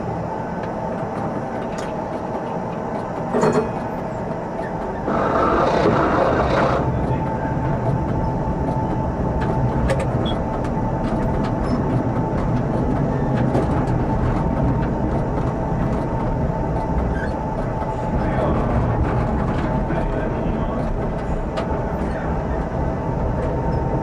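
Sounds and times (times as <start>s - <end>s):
tram running on rails: 0.0s - 24.0s.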